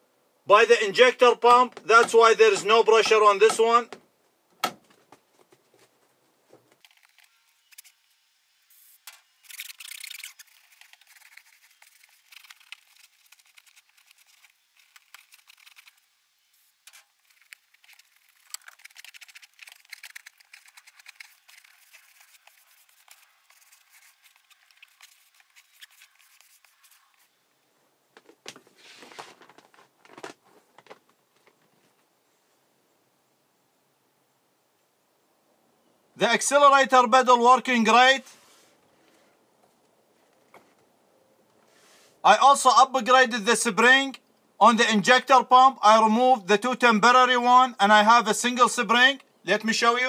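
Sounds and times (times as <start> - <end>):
rubber mat scraping and rustling: 9.4 - 27.4, 28.2 - 32.0
rubber floor mat sliding: 28.3 - 31.0.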